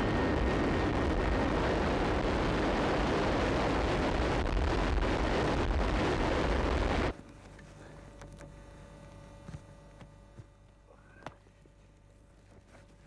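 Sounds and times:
airplane engines roaring: 0.0 - 8.4.

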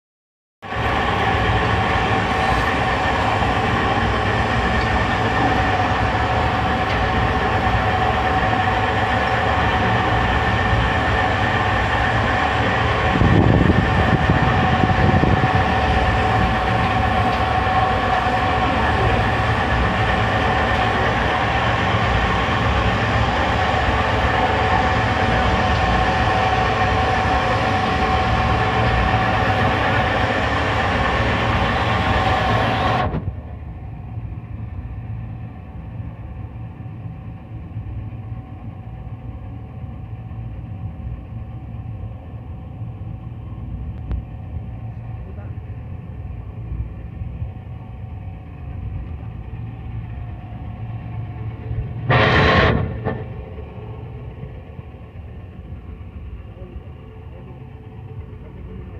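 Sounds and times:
low rumble: 0.6 - 58.9
blender motor droning and whining: 0.7 - 33.5.

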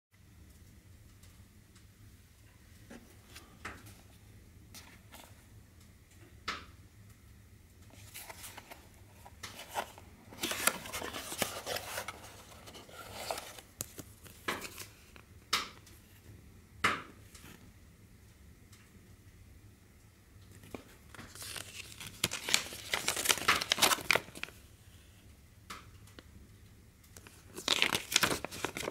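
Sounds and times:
paper and plastic packing rustling: 4.8 - 5.4, 7.9 - 15.3, 20.5 - 24.7, 27.2 - 28.9.

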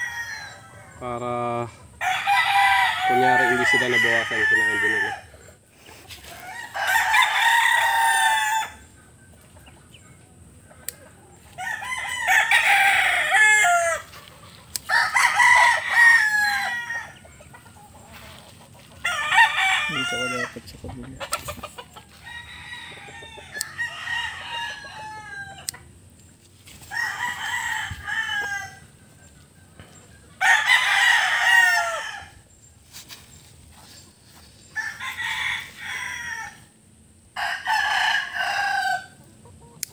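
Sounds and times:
rooster crowing: 0.0 - 1.2, 2.0 - 5.4, 6.2 - 8.9, 11.4 - 14.2, 14.8 - 17.4, 19.0 - 20.6, 22.1 - 25.8, 26.9 - 29.0, 30.4 - 32.4, 34.7 - 36.8, 37.4 - 39.2.

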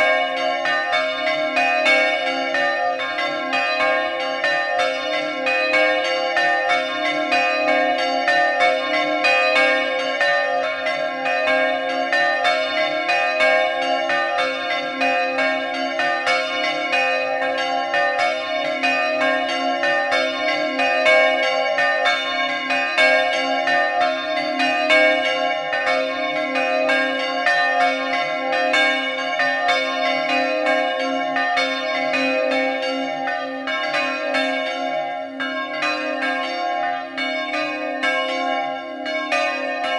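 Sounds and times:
church bells pealing: 0.0 - 39.9.

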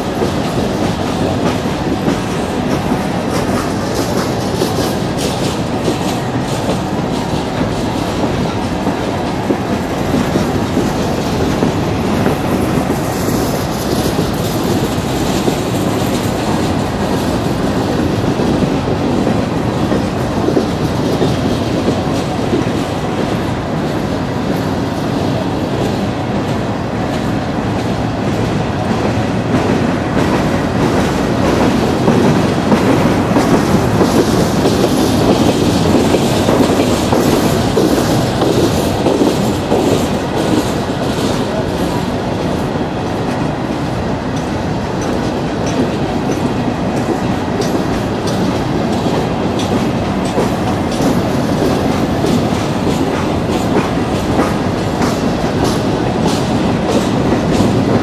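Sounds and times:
train wheels rumbling on track: 0.0 - 58.0
wheels clicking over rail joints: 44.3 - 58.0.

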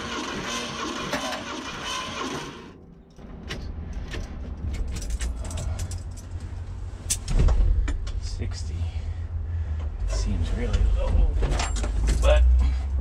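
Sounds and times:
starter cranking engine: 0.0 - 2.8
low rumble: 2.8 - 13.0.

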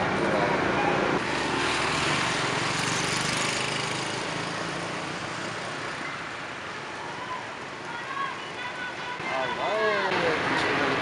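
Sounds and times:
motorbikes riding on street: 0.0 - 11.0
small motorbike engine passing: 1.2 - 6.0.

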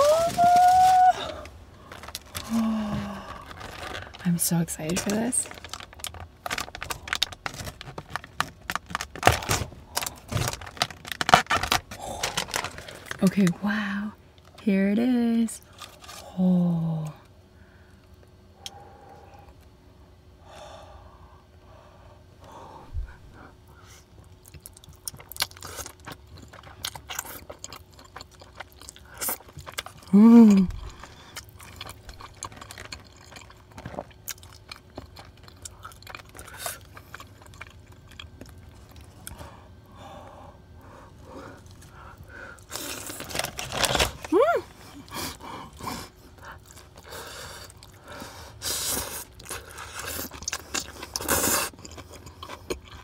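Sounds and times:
person humming mmm: 0.0 - 1.5, 2.4 - 3.4, 30.1 - 30.8
wet chewing with lip smacks: 24.0 - 39.4, 48.8 - 53.0.

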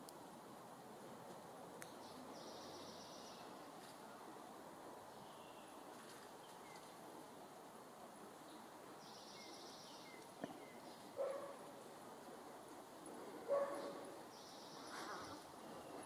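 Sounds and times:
dog barks: 11.2 - 11.6, 13.5 - 14.0.

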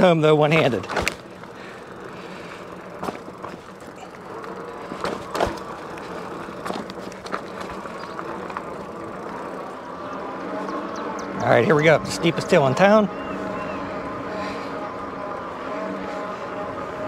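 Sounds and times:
electric bike tyre and drivetrain noise: 0.0 - 17.0.

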